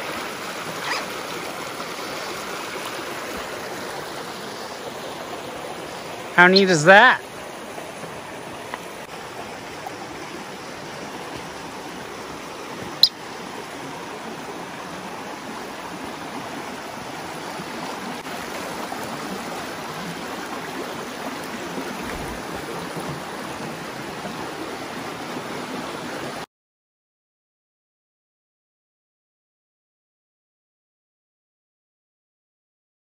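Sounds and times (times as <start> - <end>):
creek rushing over rocks: 0.0 - 26.4.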